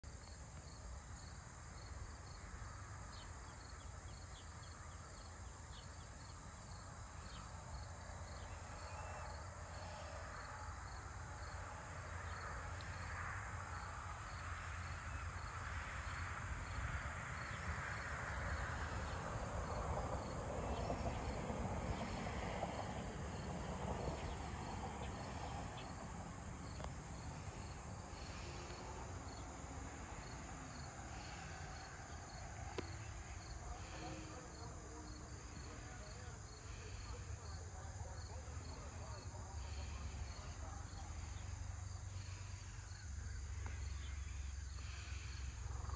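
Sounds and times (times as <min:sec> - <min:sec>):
crickets chirping: 0:00.0 - 0:45.9
high insect drone: 0:00.1 - 0:45.9.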